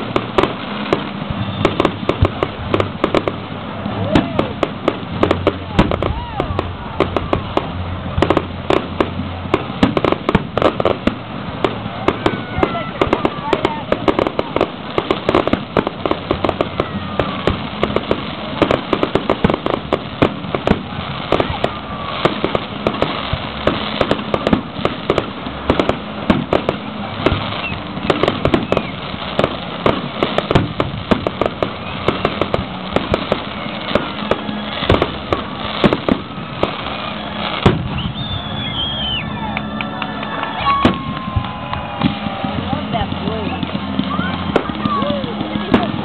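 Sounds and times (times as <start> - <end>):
fireworks bursting and crackling: 0.0 - 46.0
whistles of rising shells: 28.5 - 29.1, 37.0 - 41.5.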